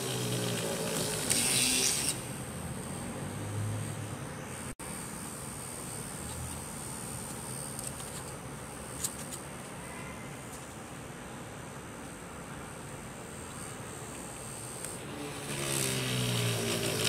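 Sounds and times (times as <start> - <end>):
drill bit rasping through wood: 0.0 - 2.3, 14.6 - 17.0
small motor whining: 0.0 - 9.4, 13.5 - 17.0.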